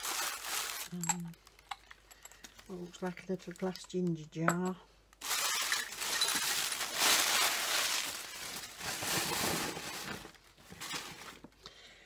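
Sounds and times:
paper rustling and crumpling: 0:00.0 - 0:01.0, 0:05.2 - 0:11.6.

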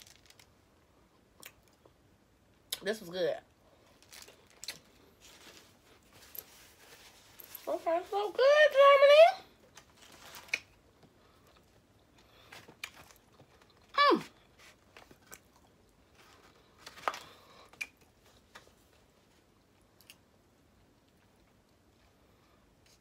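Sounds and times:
chewing and crunching snack: 0:03.9 - 0:05.1, 0:09.8 - 0:18.1
paper rustling: 0:09.8 - 0:10.7.

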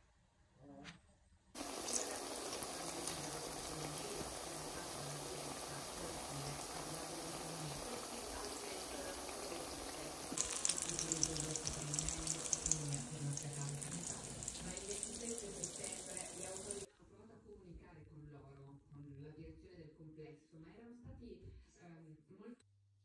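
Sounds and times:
tap water running into sink: 0:01.6 - 0:16.9.

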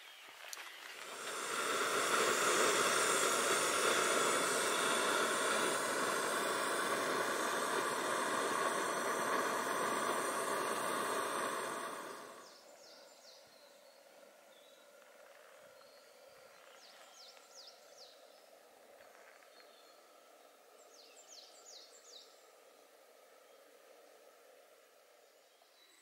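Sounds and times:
camping stove burner hiss: 0:00.4 - 0:12.6.

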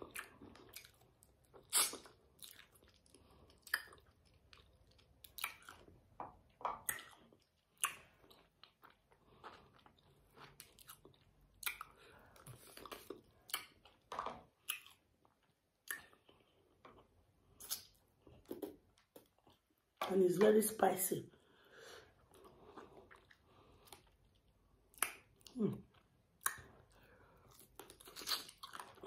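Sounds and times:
mouth clicks and smacks: 0:00.0 - 0:05.9, 0:06.5 - 0:09.0, 0:10.7 - 0:17.0, 0:17.6 - 0:19.6, 0:22.8 - 0:29.0
person chewing: 0:00.0 - 0:20.0, 0:21.4 - 0:29.0.

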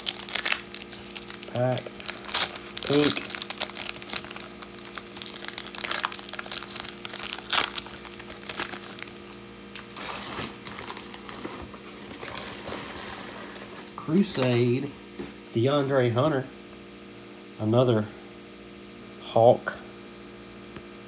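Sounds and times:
cards rustling: 0:00.0 - 0:11.6
wrapper crinkling and tearing: 0:00.0 - 0:13.8.

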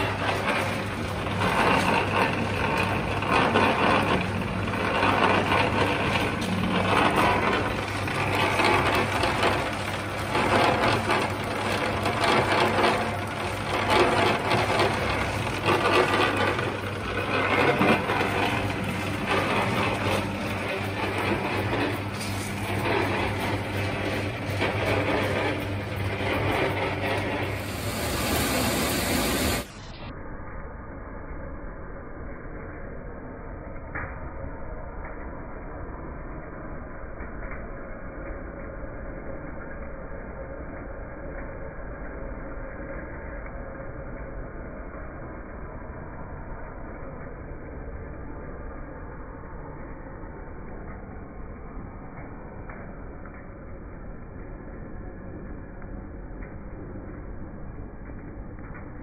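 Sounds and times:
lathe gears clattering: 0:00.0 - 0:29.9
electric motor hum: 0:00.0 - 0:30.0.

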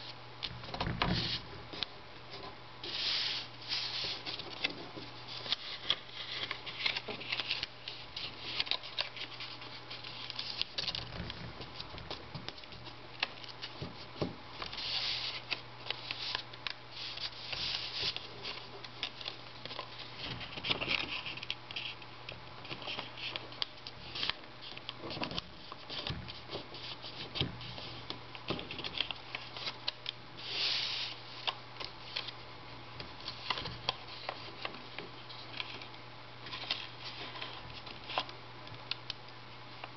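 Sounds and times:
paper crinkling and rustling: 0:00.5 - 0:32.4, 0:33.0 - 0:39.0.

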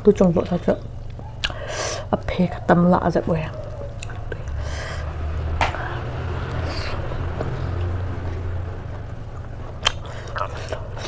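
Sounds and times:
low steady rumble: 0:00.0 - 0:11.0
eating crunch: 0:03.6 - 0:04.6, 0:06.4 - 0:11.0.

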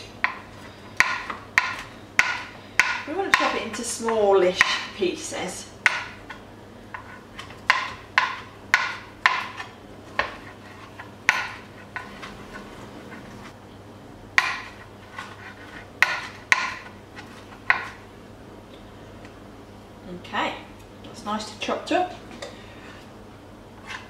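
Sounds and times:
knife chopping on a board: 0:00.2 - 0:04.9, 0:05.8 - 0:12.3, 0:14.4 - 0:18.0.

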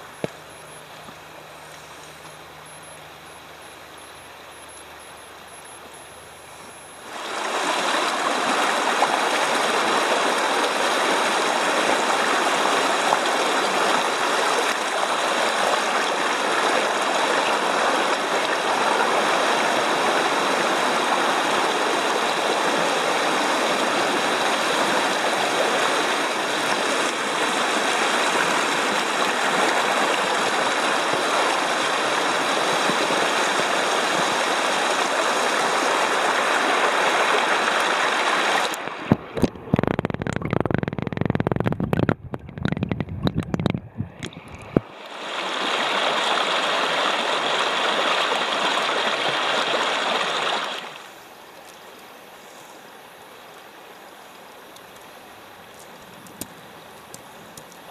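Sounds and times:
creek rushing over rocks: 0:07.0 - 0:51.1.

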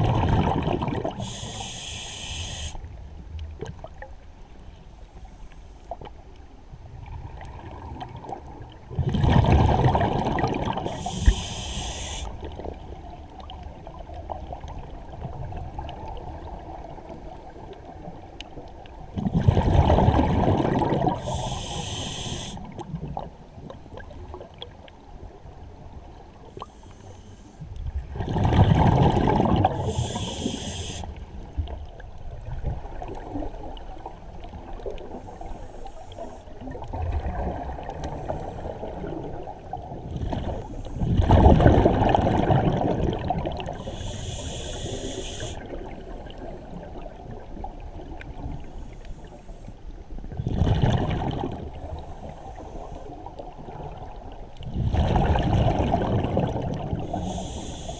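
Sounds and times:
exhaled bubbles rumbling: 0:00.0 - 0:01.4, 0:06.9 - 0:17.0, 0:19.0 - 0:21.4, 0:27.8 - 0:30.6, 0:36.6 - 0:44.8, 0:50.2 - 0:52.3, 0:53.3 - 0:57.5
steady underwater rush: 0:00.0 - 0:03.2, 0:07.1 - 0:18.2, 0:19.1 - 0:23.3, 0:26.5 - 0:57.9
hissing regulator inhalations: 0:01.2 - 0:02.8, 0:10.8 - 0:12.4, 0:21.2 - 0:22.7, 0:29.7 - 0:31.2, 0:43.8 - 0:45.7, 0:57.0 - 0:57.9.

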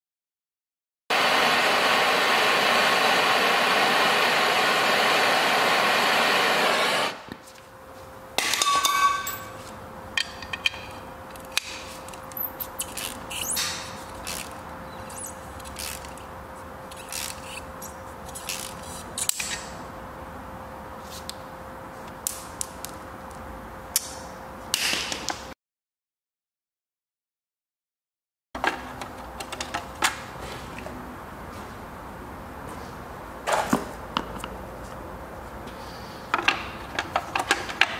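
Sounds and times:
metal clang: 0:08.4 - 0:09.6.

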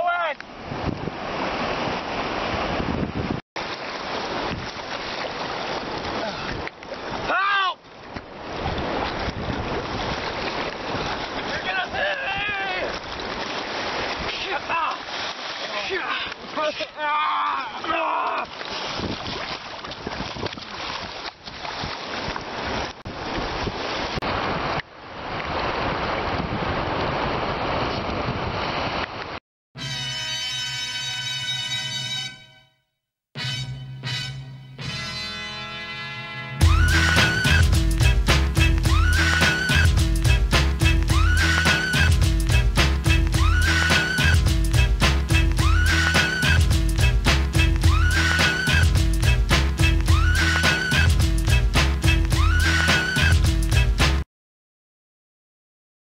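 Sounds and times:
shallow surf sloshing: 0:00.0 - 0:29.4
wind buffeting microphone: 0:00.6 - 0:03.4, 0:08.4 - 0:11.3, 0:18.8 - 0:21.1
wind rumbling on microphone: 0:00.6 - 0:03.4, 0:08.1 - 0:11.5, 0:18.7 - 0:29.4.

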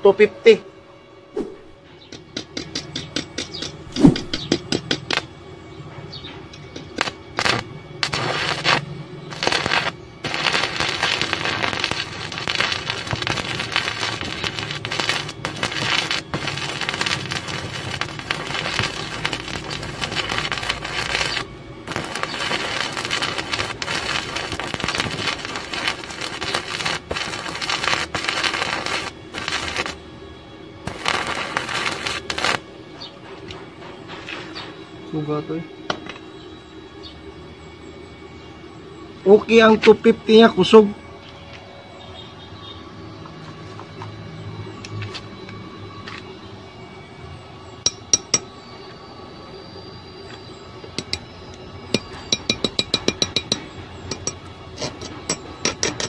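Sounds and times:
welding arc crackling sizzle: 0:03.8 - 0:05.3, 0:06.5 - 0:30.2, 0:30.8 - 0:32.7, 0:49.8 - 0:56.0
electrode scratching and cracking: 0:07.0 - 0:30.0, 0:30.9 - 0:32.6.

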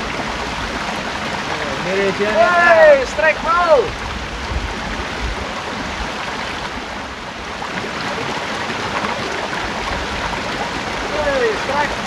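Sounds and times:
creek water running over rocks: 0:00.0 - 0:12.0.

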